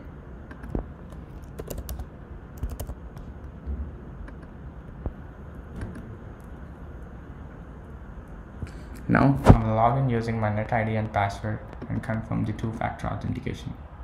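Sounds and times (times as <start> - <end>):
computer keyboard typing: 0.5 - 3.3.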